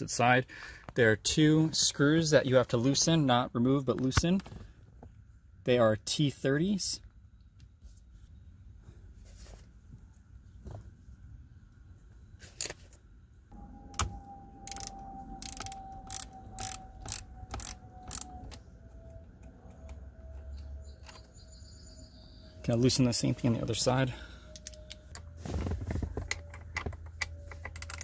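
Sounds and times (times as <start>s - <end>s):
faint steady whine: 9.7s - 28.0s
ratchet clicking: 14.0s - 18.6s, 27.2s - 28.0s.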